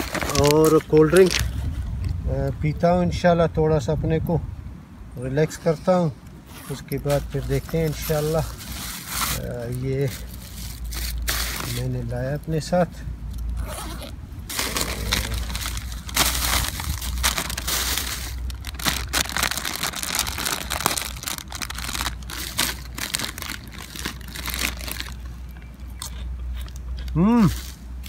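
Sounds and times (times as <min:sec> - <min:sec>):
plastic bag and foil packet crinkling: 0:00.0 - 0:01.6, 0:06.6 - 0:12.1, 0:14.5 - 0:25.7.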